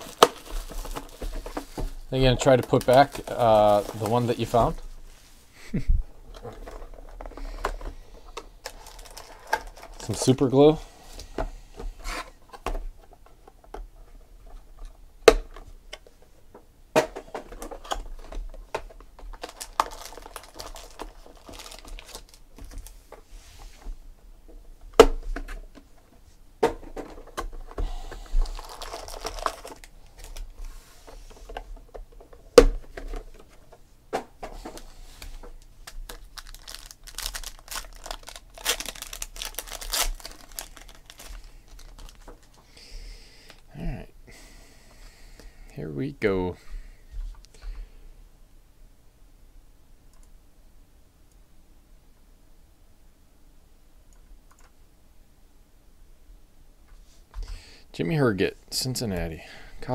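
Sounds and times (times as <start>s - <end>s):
plastic wrappers crinkling and tearing: 0.0s - 4.9s, 6.3s - 10.8s, 17.6s - 23.0s, 27.1s - 30.7s, 34.7s - 42.7s.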